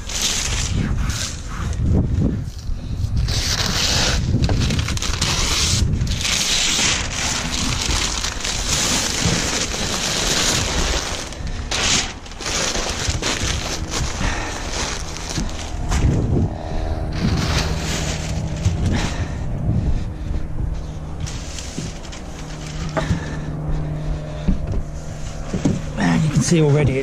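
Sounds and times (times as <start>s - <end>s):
paper wrapping rustling and crinkling: 0.0s - 1.8s, 3.0s - 16.3s, 17.1s - 19.3s, 21.2s - 23.4s.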